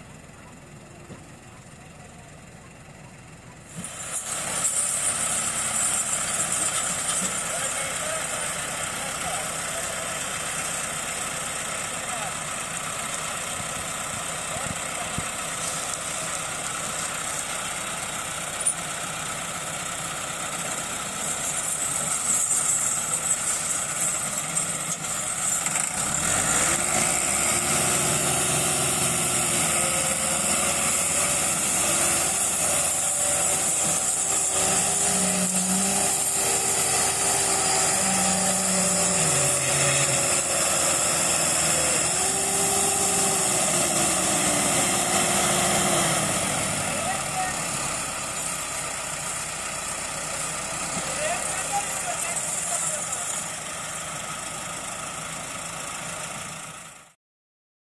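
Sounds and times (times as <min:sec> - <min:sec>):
tractor diesel engines revving: 0:00.0 - 0:57.2.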